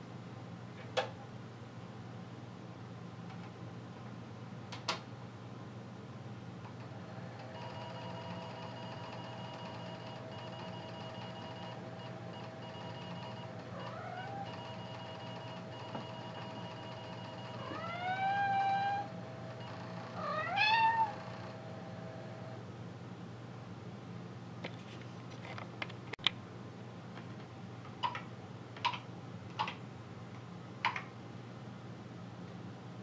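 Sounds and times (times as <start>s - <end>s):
floppy drive whine: 6.5s - 22.7s
cat meowing: 13.8s - 14.5s, 17.6s - 19.1s, 20.2s - 21.2s.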